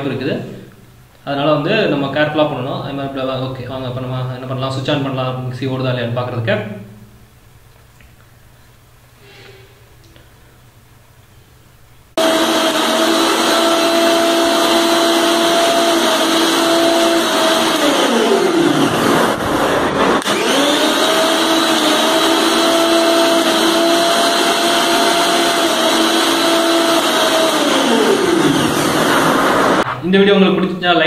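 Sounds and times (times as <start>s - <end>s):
mixer grinder motor whining: 12.2s - 29.8s.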